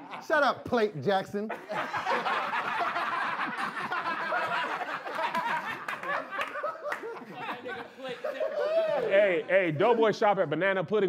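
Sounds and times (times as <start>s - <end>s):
group of people laughing: 1.4s - 10.1s.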